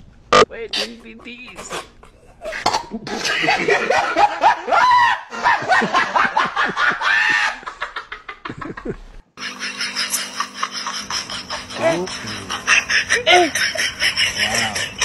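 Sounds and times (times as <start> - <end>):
man laughing hard: 3.0 - 15.0.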